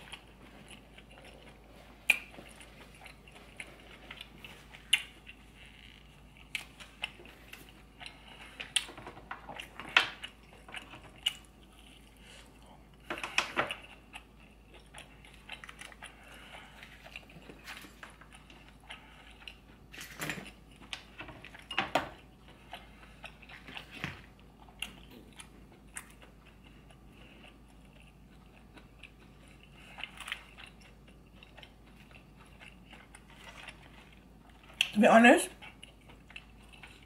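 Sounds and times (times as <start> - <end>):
person chewing wetly: 0.0 - 37.0.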